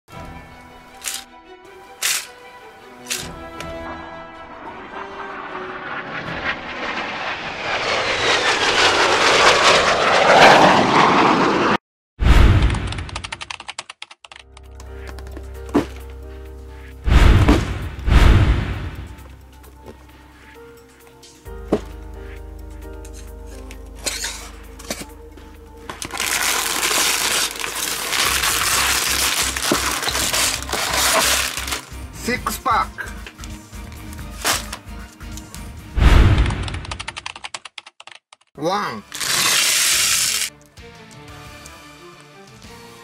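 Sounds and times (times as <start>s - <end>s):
background music: 0.1s - 5.9s, 14.4s - 36.4s, 38.6s - 43.0s
jet engine rushing: 3.5s - 12.9s, 17.1s - 19.2s
loud crinkling noise: 26.0s - 31.9s, 39.1s - 40.5s.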